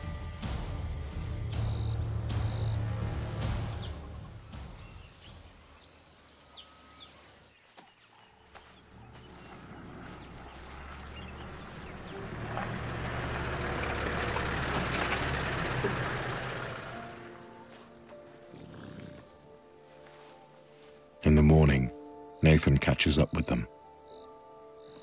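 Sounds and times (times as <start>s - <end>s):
vehicle driving over grass and dirt: 8.6s - 18.4s
low engine hum: 8.9s - 17.9s.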